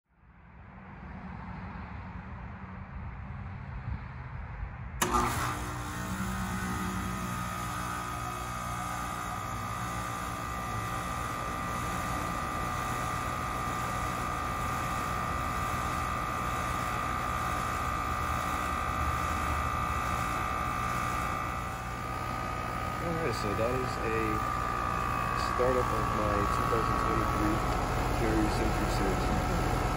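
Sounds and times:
heat pump unit humming: 5.0 - 29.9.

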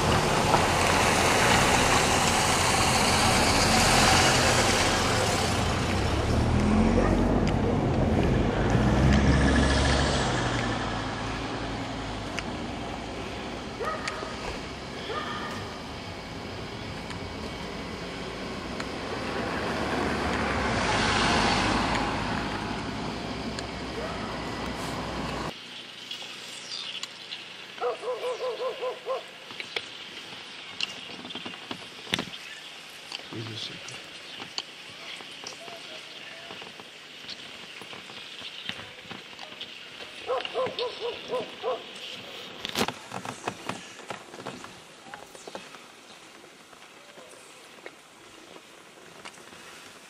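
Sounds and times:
car engine hum: 0.0 - 25.6
road and tyre noise: 0.0 - 50.0.

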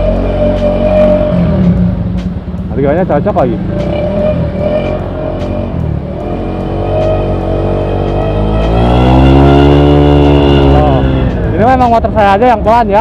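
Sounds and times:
scooter engine accelerating: 3.1 - 11.6.

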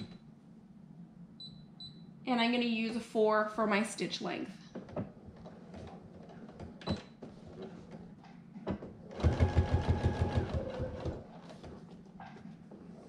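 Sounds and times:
sewing machine stitching: 9.1 - 11.8.

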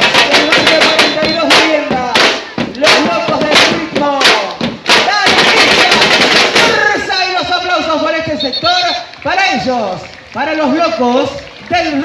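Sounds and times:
drum troupe playing: 0.0 - 9.1
voices: 0.0 - 12.0.

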